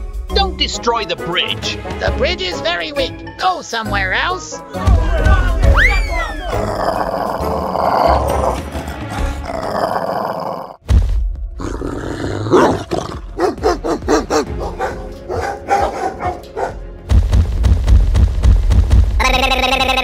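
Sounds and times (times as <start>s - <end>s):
background music: 0.0s - 20.0s
cartoon roaring and growling: 5.1s - 10.8s, 11.6s - 13.4s, 19.2s - 20.0s.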